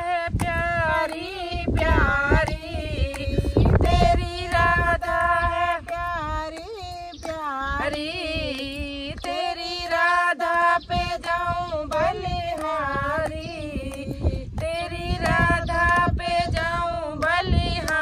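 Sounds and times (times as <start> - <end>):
women singing devotional song: 0.0 - 18.0
hand claps: 0.3 - 18.0.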